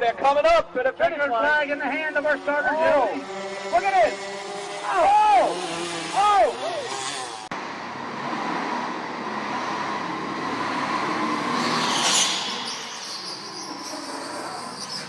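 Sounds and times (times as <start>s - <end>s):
go-kart motor and tyres: 1.5s - 15.0s.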